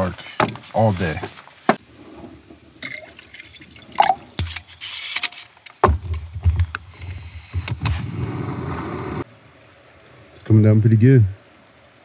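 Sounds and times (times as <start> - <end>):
water pouring into a cup: 2.7 - 4.4.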